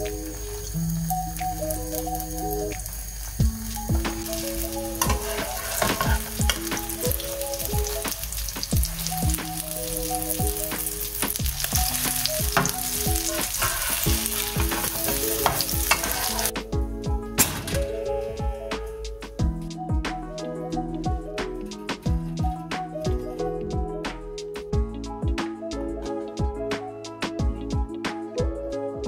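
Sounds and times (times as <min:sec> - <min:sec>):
omelette sizzling in oil: 0:00.0 - 0:16.5
background music with steady beat: 0:00.0 - 0:29.0
metal turner in frying pan: 0:03.7 - 0:09.2, 0:10.1 - 0:16.5.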